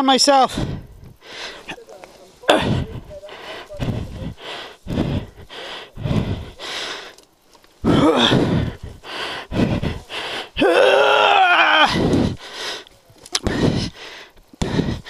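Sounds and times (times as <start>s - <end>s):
man panting: 0.4s - 15.0s
man groaning: 2.4s - 4.4s, 7.8s - 8.7s, 10.6s - 12.2s.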